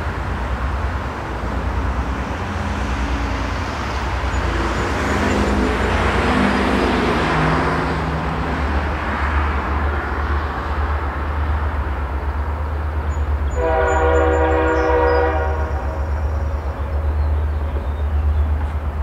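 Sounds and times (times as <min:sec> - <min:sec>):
locomotive air horn blast: 0:13.5 - 0:16.0.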